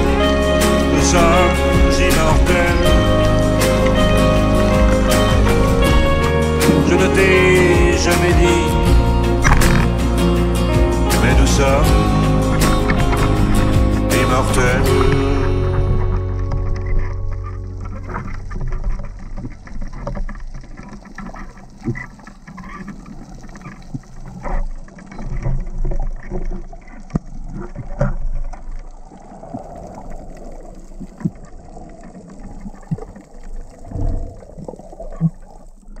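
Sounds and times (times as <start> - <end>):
water moving and bubbling: 0.0 - 36.0
underwater clicks and knocks: 9.4 - 10.0, 15.8 - 29.0.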